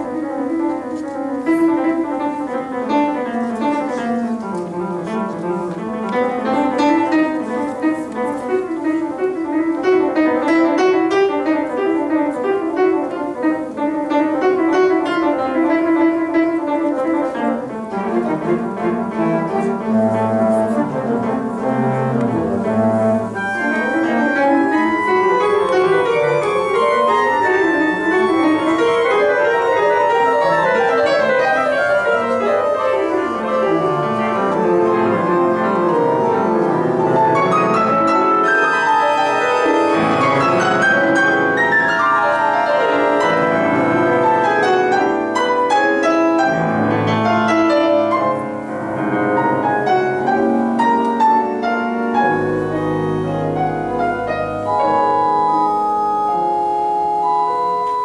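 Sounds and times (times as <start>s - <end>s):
grand piano: 0.0s - 58.0s
pipe organ: 15.0s - 50.5s, 51.3s - 58.0s.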